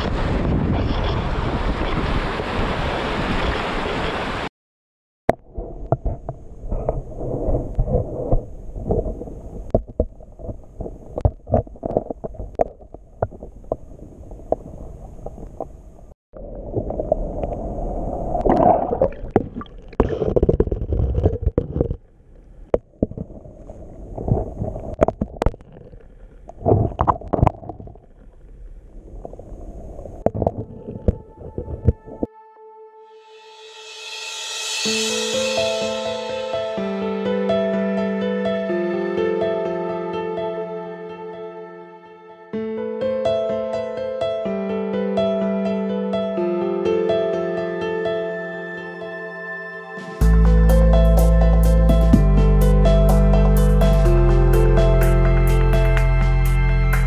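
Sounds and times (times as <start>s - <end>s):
wind buffeting microphone: 0.0s - 3.5s, 29.4s - 32.3s
sea surf: 0.0s - 4.5s, 33.4s - 41.2s
water gurgling and sloshing: 5.4s - 32.3s.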